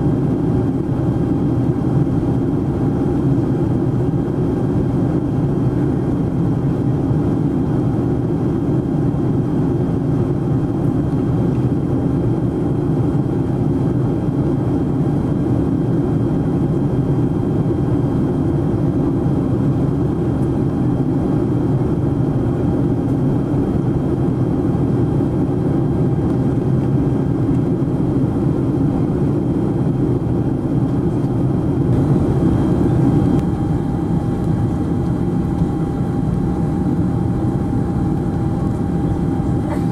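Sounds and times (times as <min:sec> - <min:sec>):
jet engine and airflow noise: 0:00.0 - 0:39.9
faint hum: 0:26.3 - 0:39.9.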